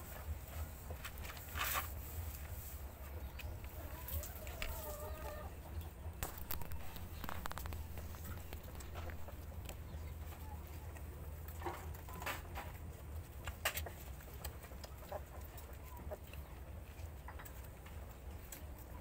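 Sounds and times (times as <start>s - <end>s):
steady low rumble: 5.5s - 11.6s.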